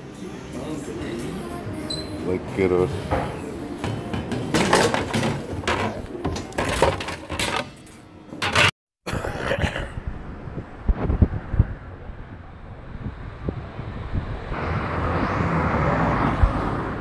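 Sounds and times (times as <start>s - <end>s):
cutlery and crockery clattering: 3.9s - 8.8s
street rumble: 9.1s - 17.0s
wind on microphone: 9.9s - 17.0s.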